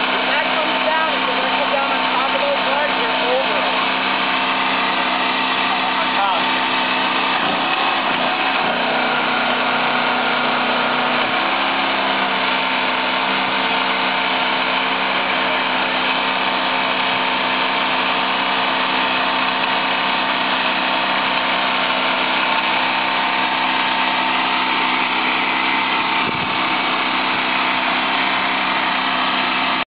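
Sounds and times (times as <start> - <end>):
winch motor running under load: 0.0 - 29.9.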